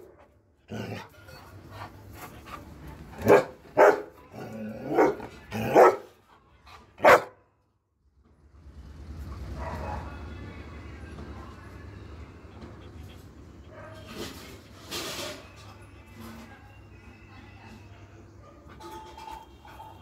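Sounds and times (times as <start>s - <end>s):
dog barking: 3.2s - 4.2s, 4.8s - 6.1s, 7.0s - 7.4s, 9.5s - 10.2s, 19.6s - 20.0s.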